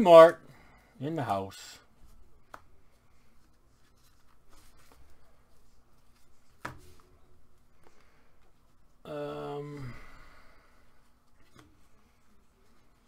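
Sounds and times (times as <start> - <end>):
cards and foil packs rustling: 2.1 - 8.2.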